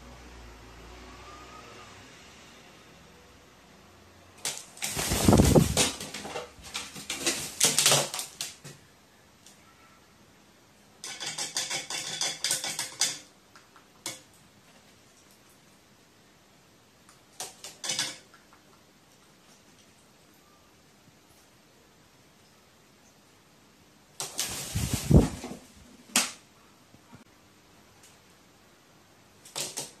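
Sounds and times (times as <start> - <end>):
bird scuffling with thumps and scrapes: 4.4 - 8.8, 24.2 - 26.2.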